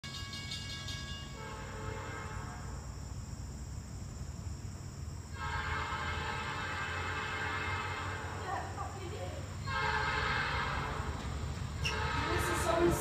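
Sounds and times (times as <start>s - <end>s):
low train rumble: 0.0s - 13.0s
train air horn blasts: 0.3s - 2.9s, 5.4s - 8.7s, 9.6s - 13.0s.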